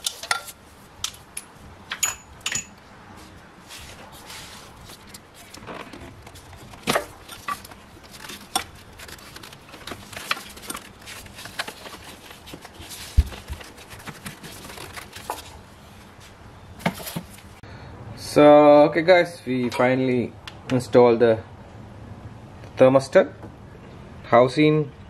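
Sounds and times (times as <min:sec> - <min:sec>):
clicks and rubbing of rubber hose: 0:03.2 - 0:17.6.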